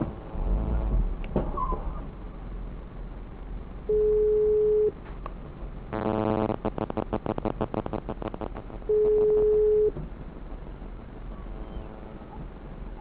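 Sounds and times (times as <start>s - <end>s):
rapid clicking pulses: 5.9s - 13.0s
short buzzing tone: 6.0s - 8.1s
electronic beep: 8.9s - 9.9s.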